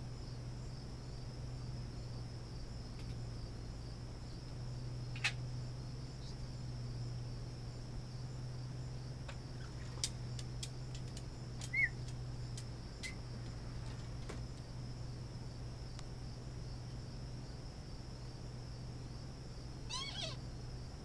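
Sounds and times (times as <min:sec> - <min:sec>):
low steady hum: 0:00.0 - 0:21.0
sharp clicks: 0:10.0 - 0:13.6
short bird chirp: 0:11.7 - 0:12.0
high-pitched insect drone: 0:19.8 - 0:20.6.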